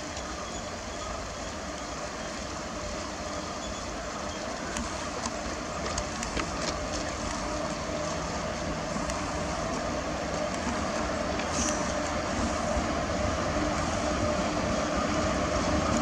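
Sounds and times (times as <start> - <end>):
train wheels rumbling on rail: 0.0 - 16.0
faint clicks: 4.3 - 8.2, 9.0 - 12.2.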